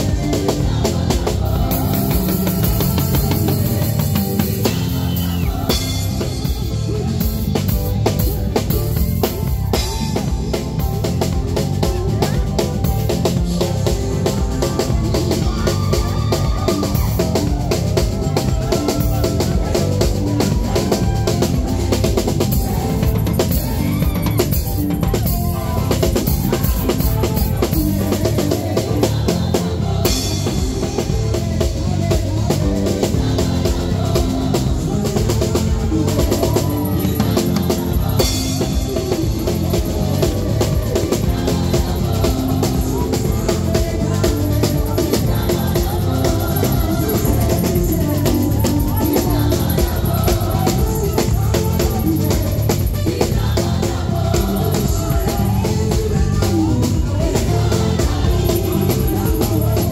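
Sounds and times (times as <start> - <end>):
drum kit steady beat: 0.0 - 59.9
gospel choir singing: 0.0 - 59.9.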